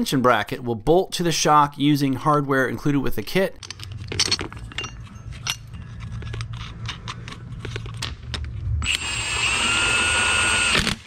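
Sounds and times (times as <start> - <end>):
small metal clinks and taps: 3.6 - 7.2
cordless power tool whining: 8.8 - 11.0.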